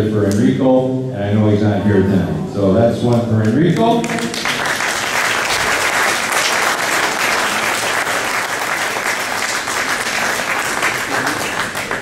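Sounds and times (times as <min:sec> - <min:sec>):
audience applauding: 0:03.8 - 0:12.0.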